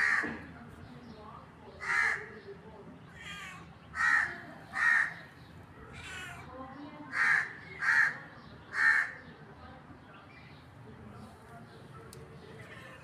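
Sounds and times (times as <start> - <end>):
cat meowing harshly: 3.1 - 4.1, 5.9 - 6.5, 12.5 - 13.0.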